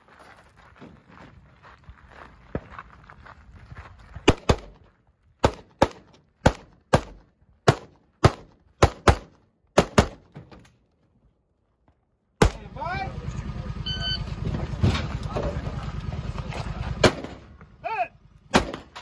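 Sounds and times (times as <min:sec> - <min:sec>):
rifle gunshots: 0:04.3 - 0:04.8, 0:05.4 - 0:10.4, 0:17.0 - 0:17.5, 0:18.5 - 0:19.0.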